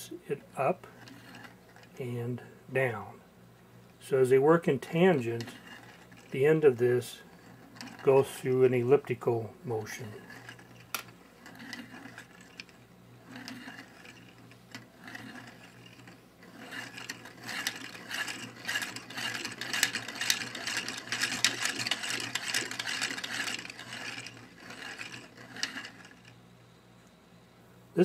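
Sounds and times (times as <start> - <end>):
plastic mechanism clicking and rubbing: 9.9 - 26.4.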